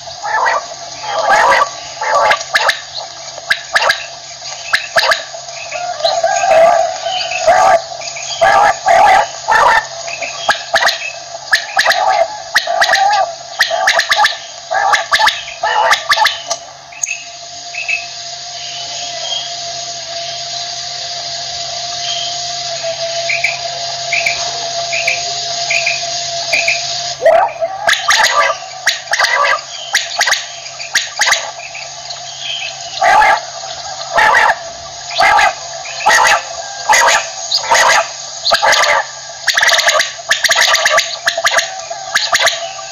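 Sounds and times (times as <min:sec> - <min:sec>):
quail calling: 0:00.0 - 0:18.1, 0:22.0 - 0:42.9
background hum: 0:00.0 - 0:42.9.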